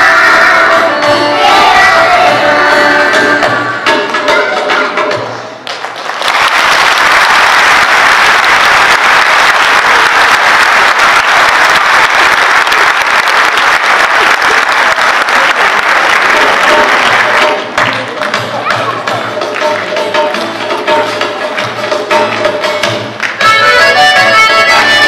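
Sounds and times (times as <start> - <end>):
children's choir singing: 0.0 - 4.4
audience applauding: 5.6 - 20.0.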